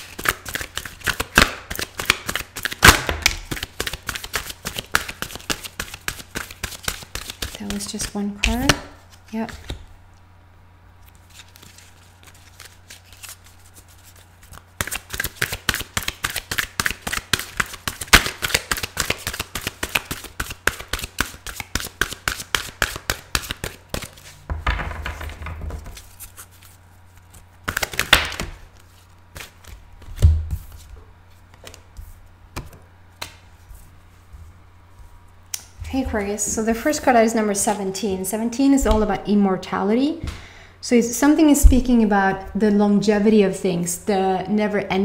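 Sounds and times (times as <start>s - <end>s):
playing cards shuffling: 0.0s - 9.9s, 11.0s - 35.6s
thumps and rustles of cards: 0.0s - 9.9s, 11.2s - 35.1s.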